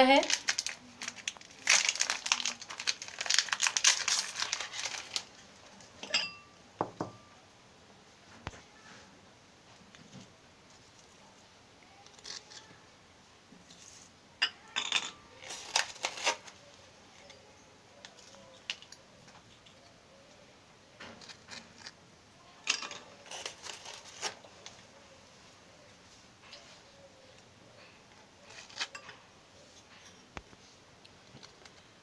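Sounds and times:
knife and biscuits clinking on glass: 6.0s - 6.5s, 14.4s - 16.4s, 28.5s - 29.2s.

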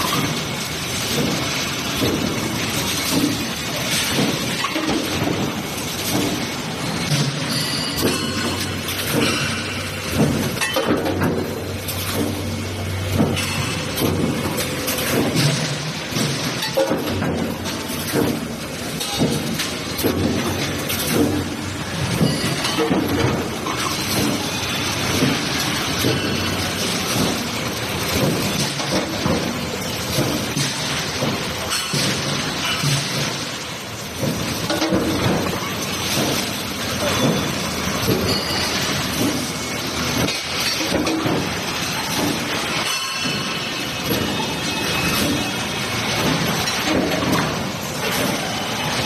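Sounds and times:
metallic clanks: 34.2s - 48.6s.

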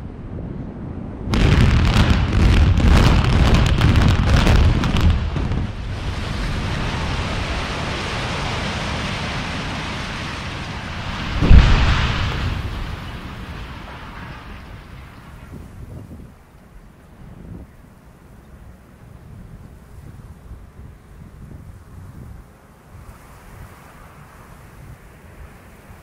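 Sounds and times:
rumble of collapsing building: 0.5s - 15.8s
demolition charges cracking and booming: 1.2s - 16.2s.

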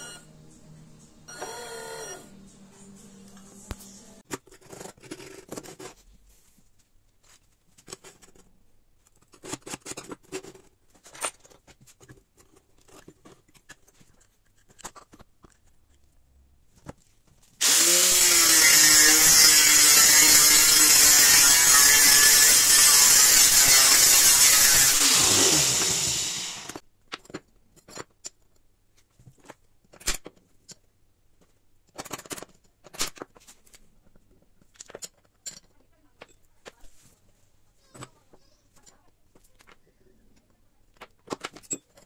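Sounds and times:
angle grinder cutting metal: 17.6s - 26.8s
metal parts and tools clicking: 31.5s - 36.8s, 40.9s - 42.0s.

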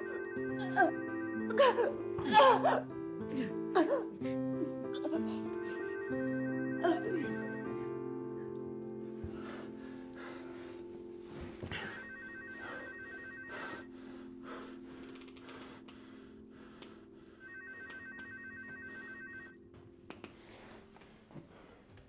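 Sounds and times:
telephone ringing: 0.0s - 1.6s, 5.6s - 8.2s, 11.7s - 14.0s, 17.4s - 19.7s.

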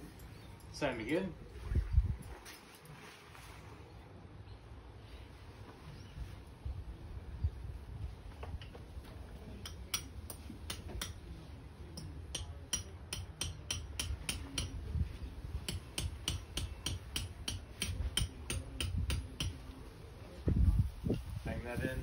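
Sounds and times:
wind rumbling on microphone: 1.4s - 2.9s, 5.9s - 9.5s, 14.5s - 15.9s, 18.0s - 22.0s
hammer tapping metal peg: 9.6s - 11.2s, 12.0s - 14.8s, 15.7s - 19.6s.

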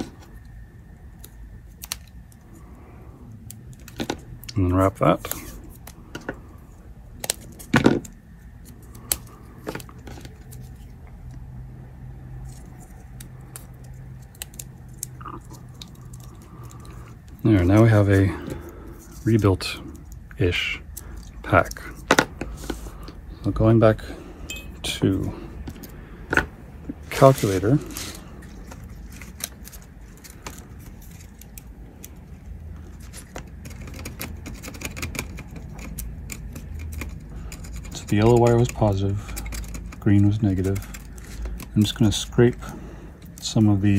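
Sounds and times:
faint low hum: 0.0s - 43.9s
tape crinkling: 7.0s - 11.5s, 12.3s - 23.2s, 26.9s - 43.9s.

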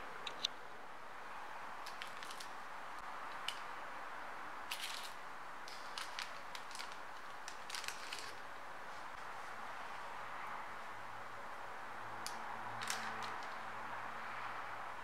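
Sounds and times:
bread rolls tearing: 4.7s - 8.5s.

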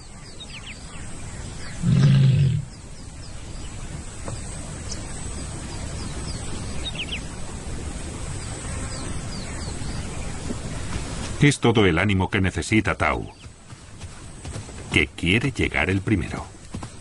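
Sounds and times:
lion roaring: 1.8s - 2.7s.

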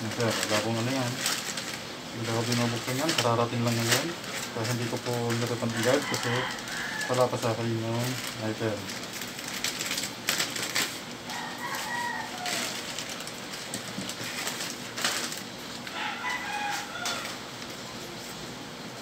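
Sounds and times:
plastic bag crinkling: 0.0s - 18.4s
chicken calling: 5.8s - 7.3s, 11.2s - 13.2s, 15.8s - 18.0s.

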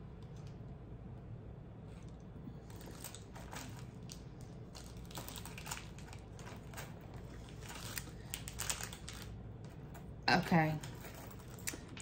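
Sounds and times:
small items clicking and rustling: 2.6s - 10.1s, 10.7s - 12.0s.

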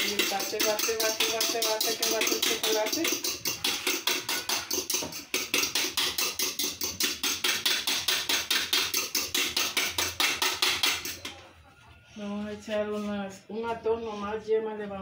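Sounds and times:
whisk clicking against bowl: 0.0s - 11.3s.

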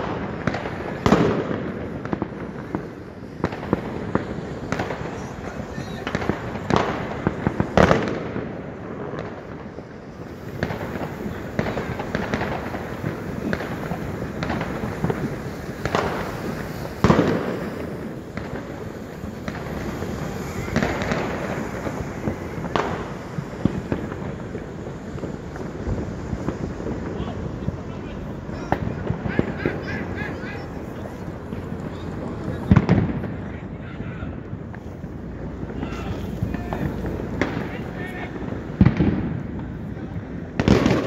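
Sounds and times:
fireworks crackling: 0.0s - 41.0s
loud firecracker bangs: 0.0s - 41.0s.

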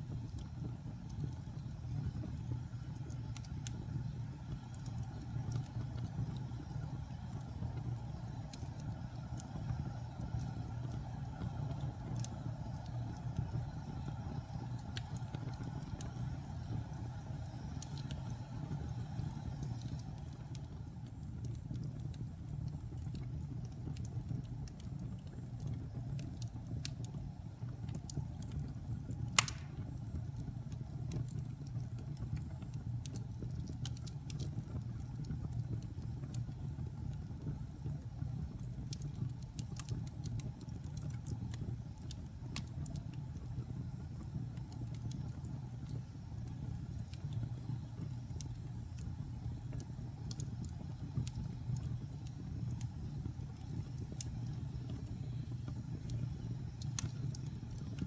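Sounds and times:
wood fire crackling: 0.0s - 58.0s
sharp fire pop: 29.4s - 30.0s.

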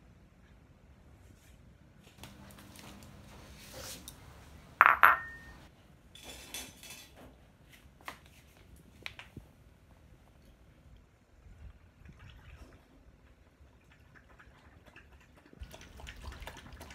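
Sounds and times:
bowl and cup clattering on tiles: 4.8s - 5.6s.

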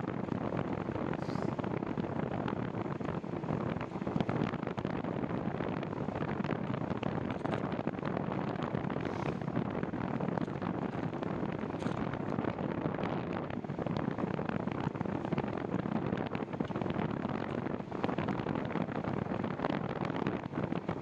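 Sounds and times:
wind buffeting microphone: 0.0s - 21.0s
bicycle clicks and rattles: 7.1s - 7.8s, 10.2s - 12.5s.

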